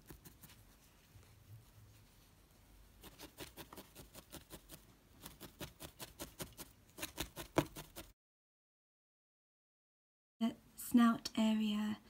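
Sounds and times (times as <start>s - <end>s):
felting needle poking foam: 0.0s - 1.0s, 2.9s - 8.2s.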